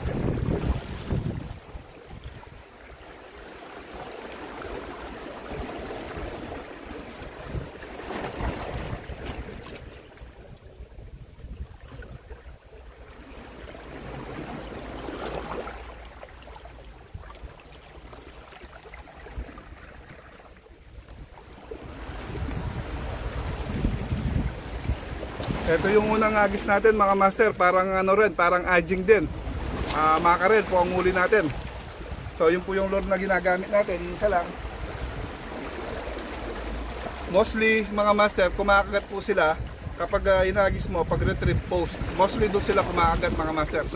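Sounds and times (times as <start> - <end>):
wind on microphone: 0.0 - 2.6, 4.6 - 12.7, 21.0 - 27.6, 29.2 - 37.2, 38.5 - 43.9
small waves washing ashore: 0.0 - 43.9.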